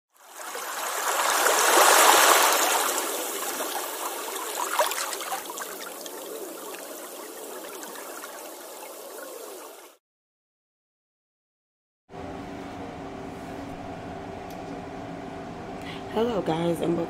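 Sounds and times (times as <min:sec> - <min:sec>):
water rushing and gurgling: 0:00.1 - 0:10.0.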